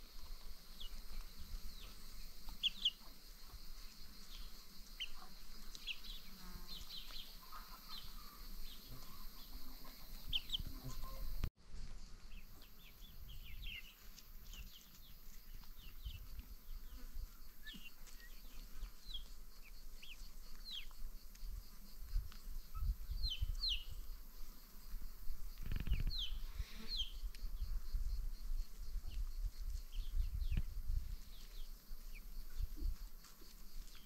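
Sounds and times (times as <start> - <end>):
birds chirping: 0.7 - 3.1, 4.3 - 11.5, 12.2 - 20.9.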